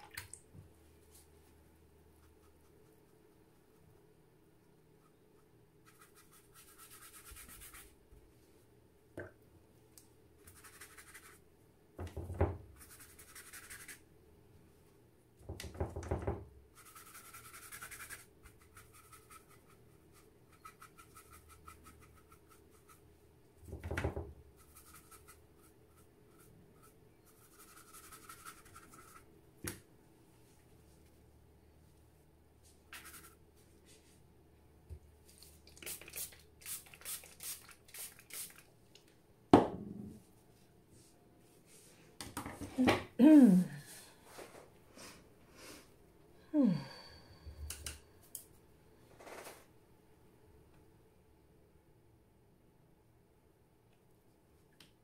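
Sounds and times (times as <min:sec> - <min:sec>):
paintbrush scratching on paper: 0:05.0 - 0:07.9, 0:10.4 - 0:11.4, 0:12.8 - 0:14.0, 0:16.8 - 0:23.0, 0:24.6 - 0:29.3, 0:32.9 - 0:33.4.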